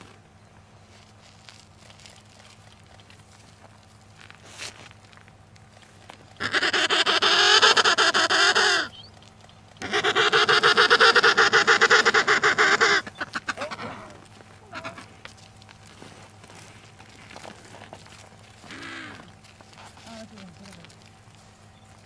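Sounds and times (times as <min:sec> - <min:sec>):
penguin calls: 0:06.1 - 0:15.4, 0:16.4 - 0:21.0.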